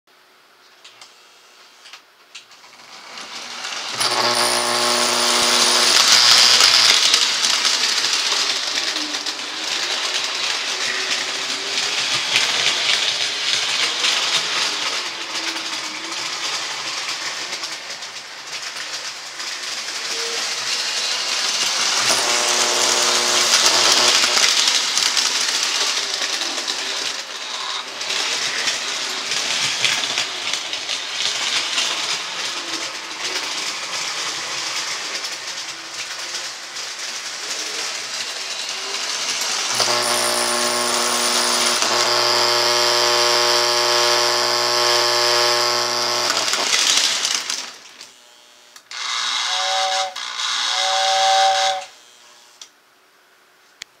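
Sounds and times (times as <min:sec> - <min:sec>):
toy train clattering on track: 0:01.8 - 0:48.2, 0:48.8 - 0:52.0
electrical buzz: 0:04.0 - 0:06.9, 0:22.0 - 0:24.5, 0:39.7 - 0:46.9.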